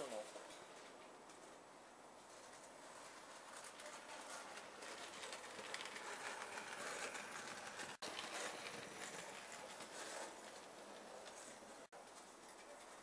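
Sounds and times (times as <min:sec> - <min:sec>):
model train running on track: 0:03.4 - 0:11.9.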